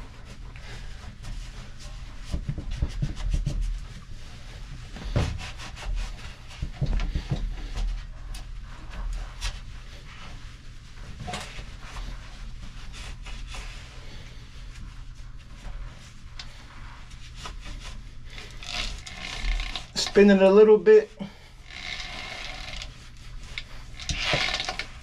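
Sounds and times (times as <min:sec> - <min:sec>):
cloth rag rubbing metal: 0:16.0 - 0:25.0.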